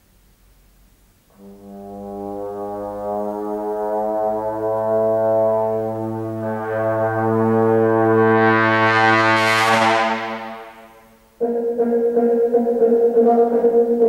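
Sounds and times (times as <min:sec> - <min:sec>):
trombone holding a low note: 0:01.3 - 0:11.2.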